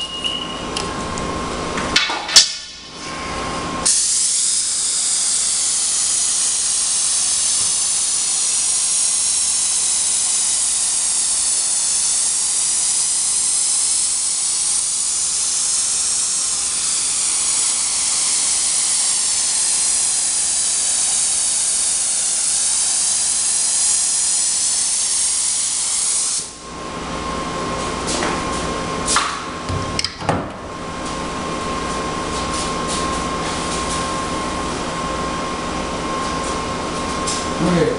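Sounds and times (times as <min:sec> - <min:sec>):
spray gun hissing: 0:03.9 - 0:26.6.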